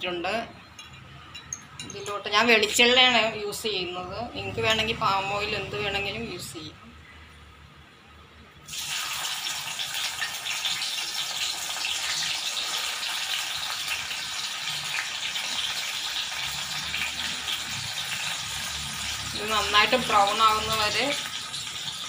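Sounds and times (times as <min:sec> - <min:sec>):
oil sizzling and crackling: 0:08.6 - 0:22.0.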